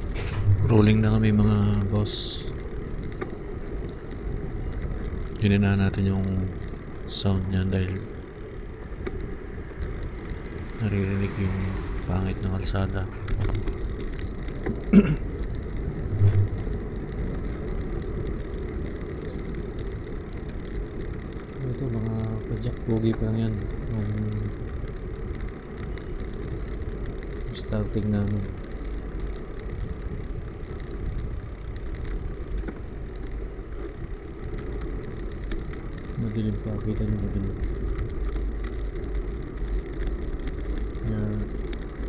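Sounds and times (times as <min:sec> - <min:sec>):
sharp bump: 0:00.0 - 0:01.3
bicycle rolling over rough road: 0:00.0 - 0:42.0
small ticks and rattles: 0:00.0 - 0:42.0.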